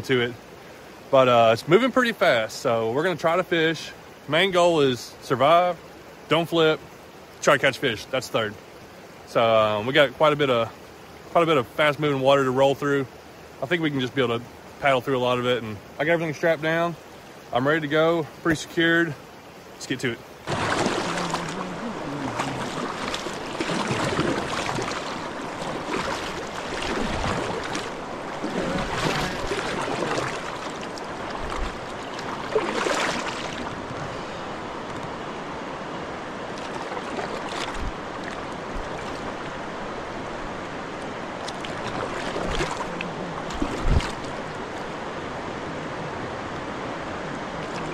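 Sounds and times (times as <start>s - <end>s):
river current rushing: 0.0s - 47.9s
paddle strokes splashing: 20.4s - 35.1s, 36.4s - 39.8s, 40.4s - 45.0s, 47.6s - 47.9s.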